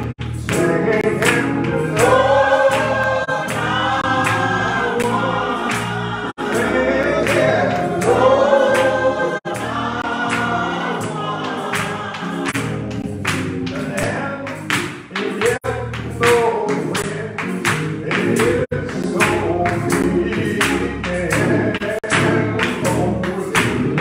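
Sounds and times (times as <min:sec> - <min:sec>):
choir singing gospel: 0:00.0 - 0:24.0
steady beat: 0:00.0 - 0:24.0
man singing into a microphone: 0:00.5 - 0:02.2, 0:13.9 - 0:24.0.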